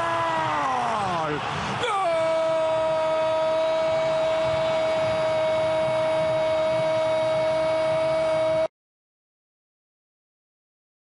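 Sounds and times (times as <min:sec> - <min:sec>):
commentator shouting goal: 0:00.0 - 0:07.0
stadium crowd noise: 0:00.0 - 0:08.7.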